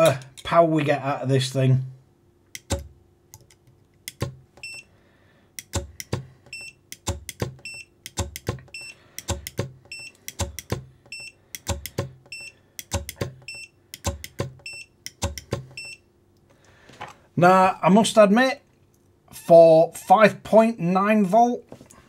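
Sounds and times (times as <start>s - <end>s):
servo clicks and knocks: 2.5s - 4.8s, 5.6s - 16.0s.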